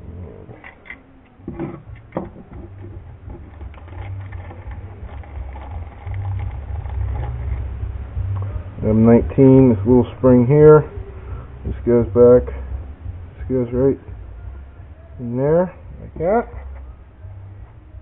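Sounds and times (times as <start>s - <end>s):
low rumble: 1.5s - 18.0s.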